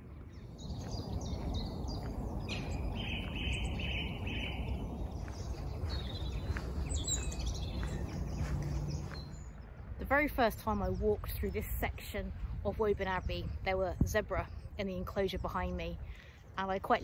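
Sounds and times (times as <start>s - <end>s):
songbirds singing: 0.0s - 17.0s.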